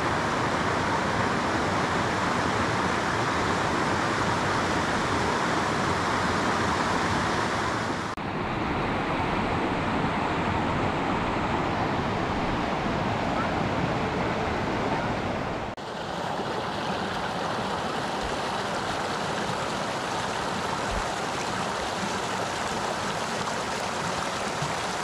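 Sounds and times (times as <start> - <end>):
river rapids rushing: 9.1 - 25.0.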